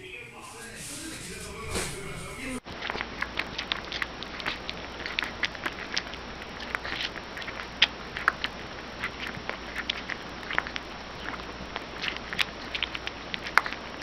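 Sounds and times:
steady hiss: 0.3 - 2.6
puppy suckling from bottle: 2.6 - 14.0.

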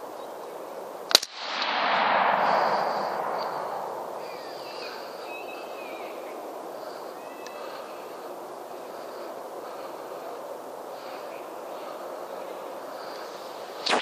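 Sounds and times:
rifle shot: 1.1 - 4.7
gunshot echo: 1.1 - 5.0.

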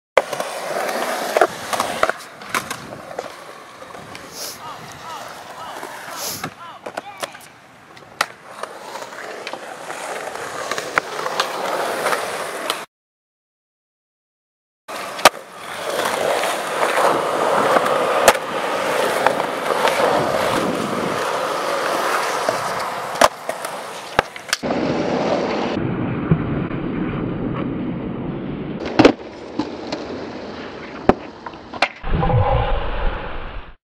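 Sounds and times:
skateboard clacks: 0.2 - 12.8, 14.9 - 24.7
skateboard wheels rolling on concrete: 0.2 - 12.9, 14.9 - 32.1.

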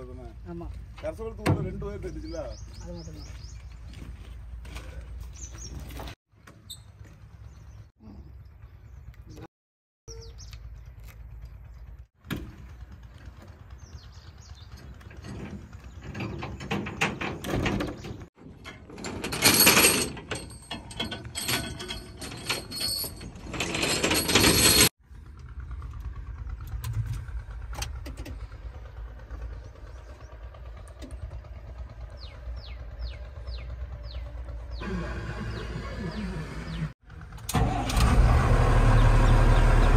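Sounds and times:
clunks and rattles: 12.2 - 34.8
low steady rumble: 25.0 - 37.5.

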